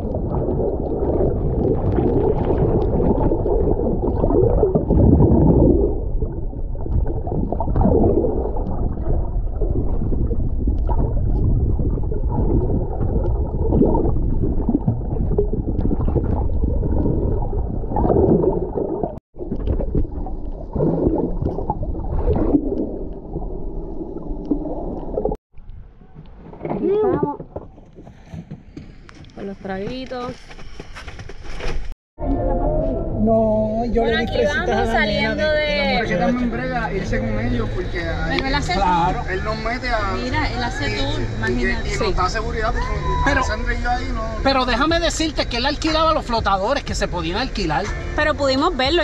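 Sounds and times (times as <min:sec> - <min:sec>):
underwater sloshing and gurgling: 0:00.0 - 0:28.4.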